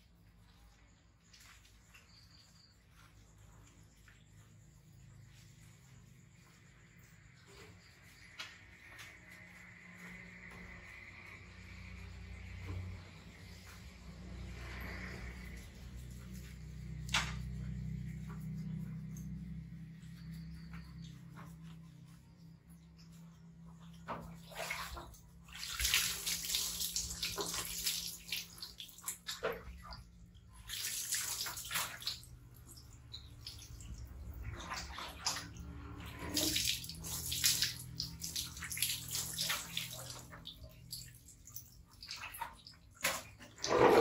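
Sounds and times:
water dripping on tiled floor: 22.9 - 43.4
water splashing and pouring: 24.1 - 44.0.

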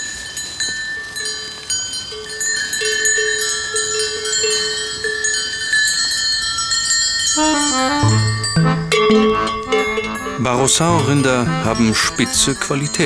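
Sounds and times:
cowbells clanking: 0.0 - 13.0
low bell striking: 7.4 - 10.4.

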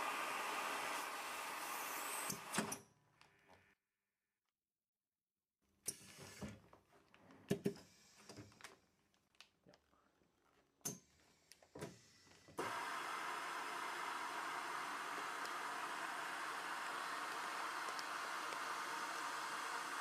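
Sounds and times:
vacuum sealer hissing: 0.0 - 2.7, 11.9 - 20.0.

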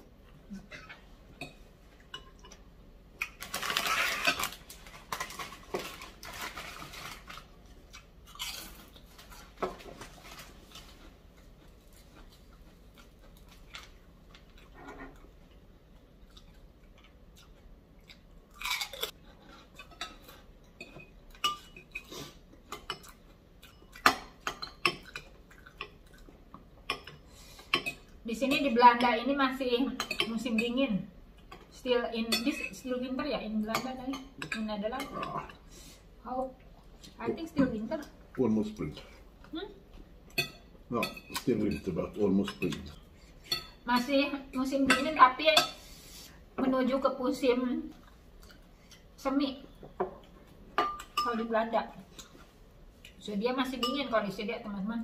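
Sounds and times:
person chewing: 10.5 - 24.1, 25.0 - 26.7.

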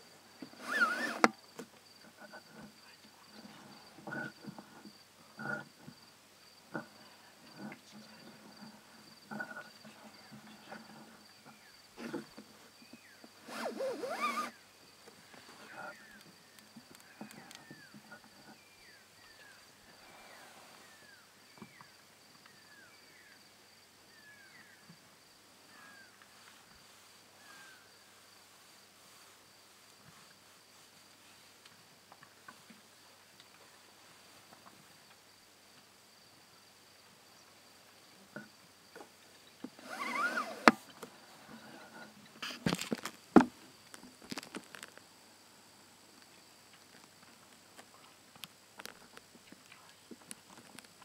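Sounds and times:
crickets trilling: 0.0 - 31.2, 31.8 - 51.0
rhino squealing: 0.6 - 1.3, 13.5 - 14.6.

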